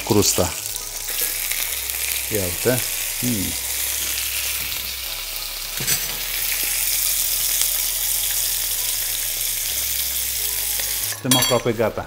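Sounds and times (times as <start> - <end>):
fish sizzling in a frying pan: 0.0 - 12.0.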